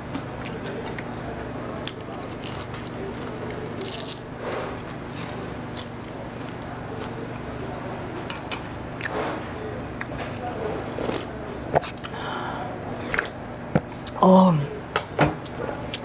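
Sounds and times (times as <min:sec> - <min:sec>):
steady low hum: 0:00.0 - 0:16.0
person chewing food: 0:01.8 - 0:07.5, 0:08.9 - 0:12.2.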